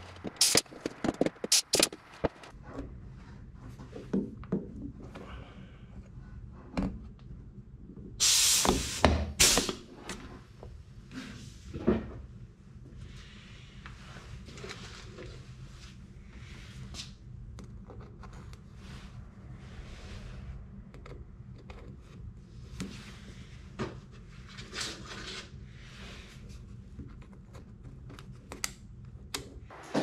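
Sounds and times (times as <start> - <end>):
pneumatic riveting tool bursts: 0.4 - 0.6, 8.2 - 9.8.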